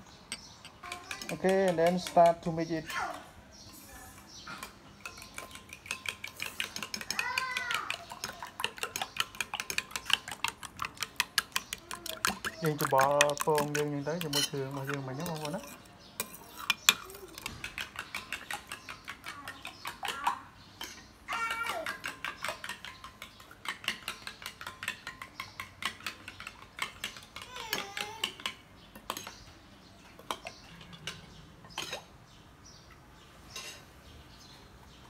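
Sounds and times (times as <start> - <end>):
metal spoon clinking on ceramic bowl: 0.3 - 2.6, 4.6 - 20.2.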